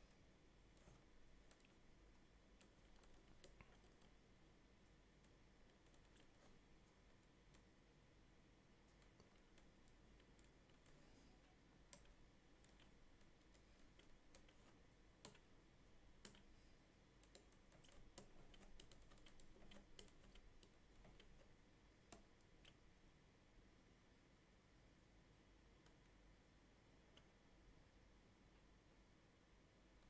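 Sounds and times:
faint computer input clicks: 16.2s - 16.6s.

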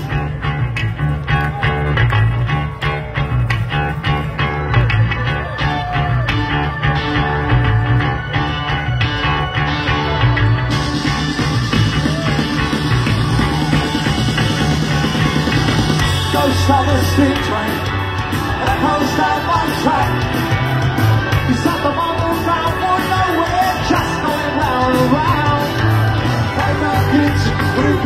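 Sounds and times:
bass: 0.0s - 28.0s
drums: 0.0s - 28.0s
electric guitar: 0.0s - 28.0s
lead vocals: 15.4s - 28.0s.

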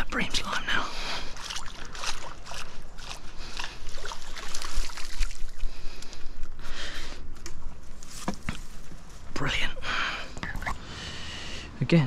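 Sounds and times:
water sloshing: 0.2s - 6.6s
fish splashing: 1.2s - 5.9s.

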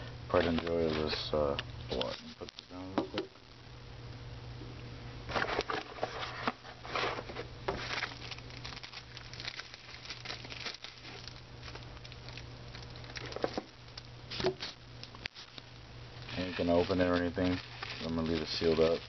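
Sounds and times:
plastic bag crinkling: 5.3s - 19.0s.

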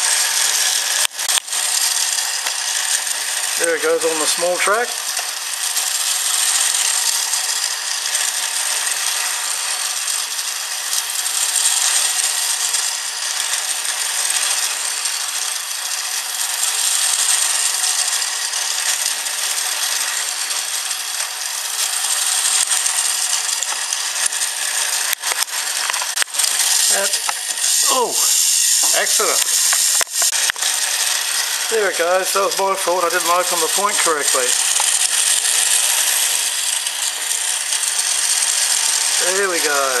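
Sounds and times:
toy train motor whirring: 0.0s - 40.0s
sharp clicks: 0.4s - 3.1s, 22.3s - 31.4s, 33.6s - 39.0s.

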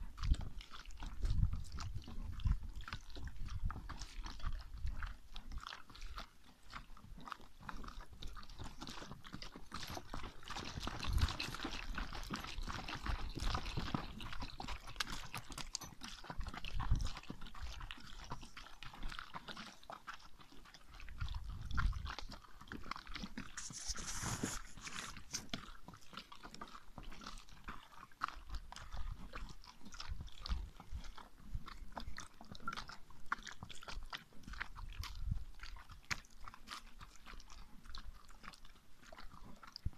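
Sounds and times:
hooves crunching on gravel: 0.0s - 39.9s
brief hiss: 23.6s - 25.3s.

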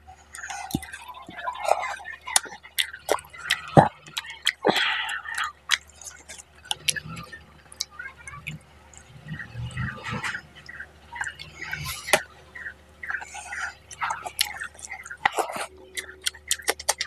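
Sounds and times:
fingers squelching in food: 13.0s - 17.0s.

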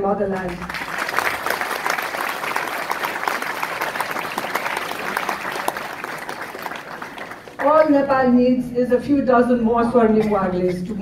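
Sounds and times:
audience applauding: 0.4s - 7.9s.

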